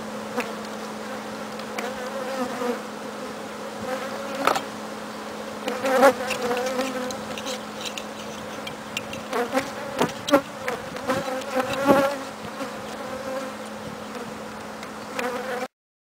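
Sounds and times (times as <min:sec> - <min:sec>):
bees buzzing: 0:00.0 - 0:15.7
knocks and scrapes: 0:05.7 - 0:13.1.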